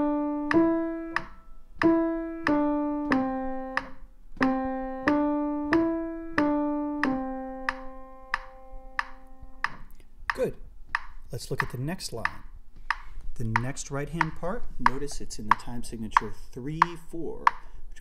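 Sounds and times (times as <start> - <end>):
slow piano melody: 0.0 - 10.0.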